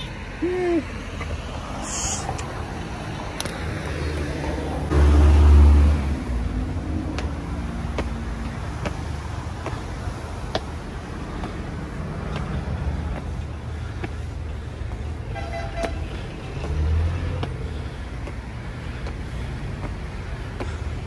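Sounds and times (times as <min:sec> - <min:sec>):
footsteps on concrete steps: 0:00.0 - 0:04.8, 0:05.9 - 0:21.0
road traffic rumbling: 0:00.0 - 0:21.0
vehicle passing: 0:00.0 - 0:21.0
vehicle horn toot: 0:15.3 - 0:16.0.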